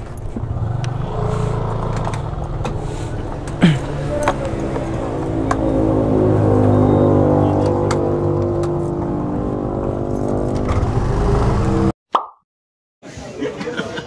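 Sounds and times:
scooter engine idling: 0.0 - 6.0.

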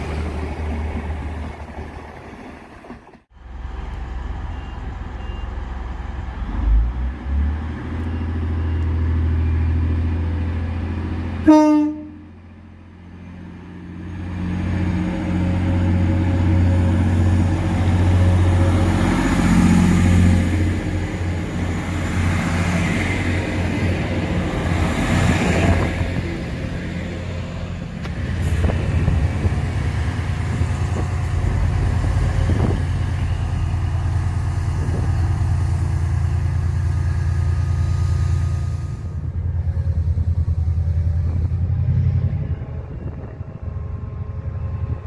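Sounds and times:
train diesel engines running: 0.0 - 45.0
train horn toot: 11.4 - 12.3
train accelerating past: 13.3 - 45.0.

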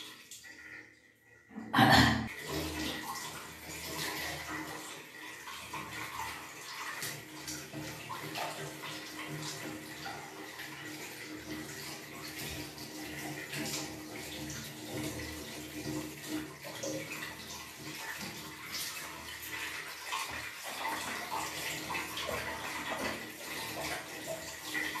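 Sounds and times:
tap water running into basin: 0.0 - 25.0.

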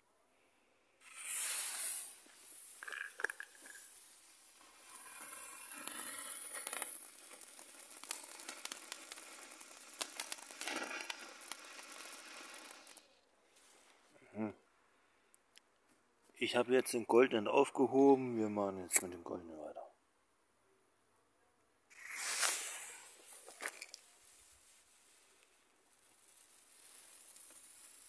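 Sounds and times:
firework fountain hissing and crackling: 1.0 - 13.2, 21.9 - 28.0.

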